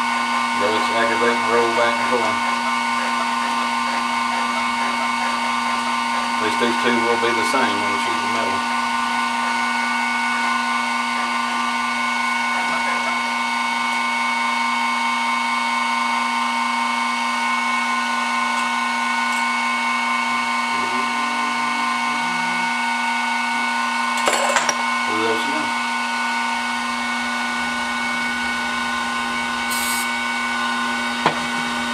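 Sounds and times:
milling machine drilling steel: 0.1s - 11.8s, 28.2s - 31.3s.

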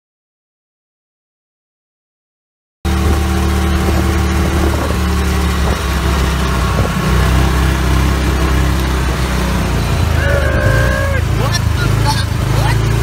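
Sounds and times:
vehicle engine humming: 2.9s - 13.0s.

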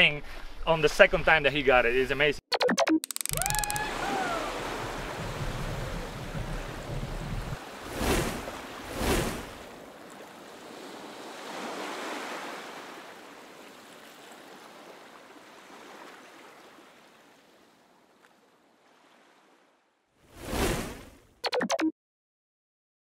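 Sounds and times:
rushing wind and water: 3.4s - 21.2s.

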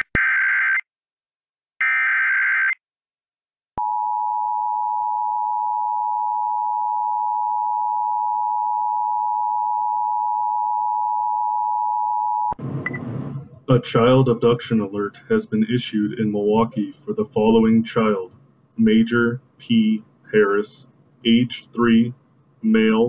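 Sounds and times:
person reading aloud: 13.5s - 23.0s.

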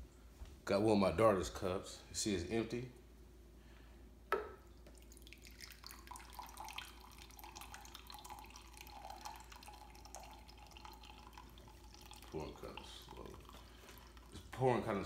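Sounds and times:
water trickling into a cup: 4.7s - 15.0s.

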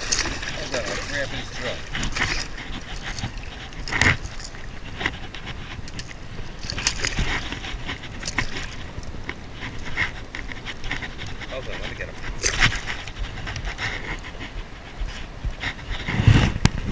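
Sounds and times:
fishing tackle clicks and rattles: 5.8s - 10.5s.

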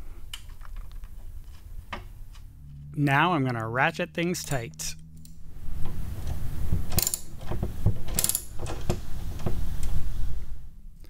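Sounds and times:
sharp metallic clicks: 3.3s - 5.4s
socket ratchet clicking: 6.9s - 7.3s.

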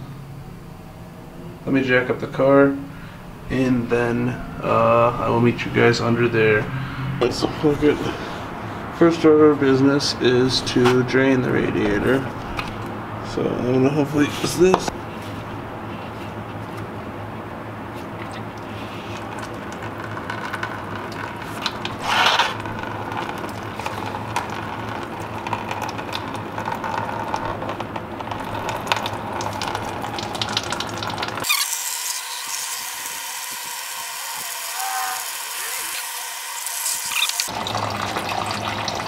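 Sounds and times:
coolant draining into a pan: 18.2s - 39.0s.

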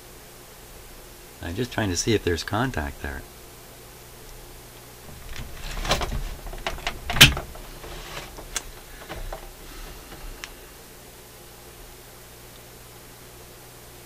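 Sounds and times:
camera handling knocks and rattles: 5.1s - 10.5s.

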